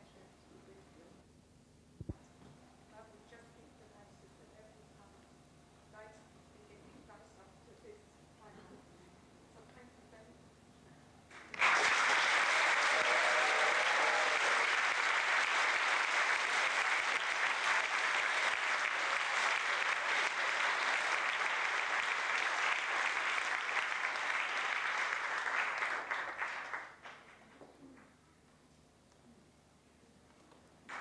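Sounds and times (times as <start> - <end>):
audience applauding: 11.3 - 27.6.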